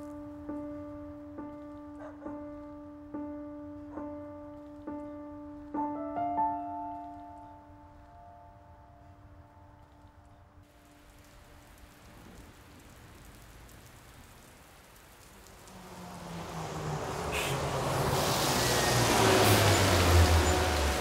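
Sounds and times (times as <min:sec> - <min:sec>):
road noise: 0:07.0 - 0:21.0
bus engine rumble: 0:15.3 - 0:21.0.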